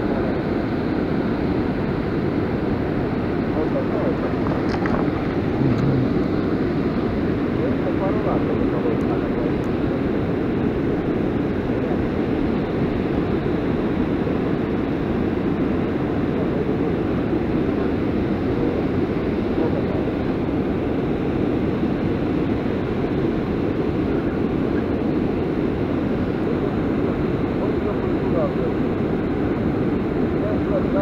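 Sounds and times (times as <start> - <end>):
steady rushing noise: 1.4 - 16.6.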